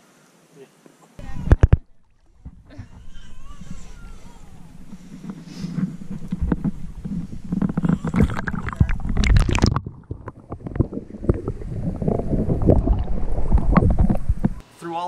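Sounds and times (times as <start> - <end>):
wind buffeting microphone: 1.2 - 14.6
handling knocks and rustles: 3.6 - 9.3.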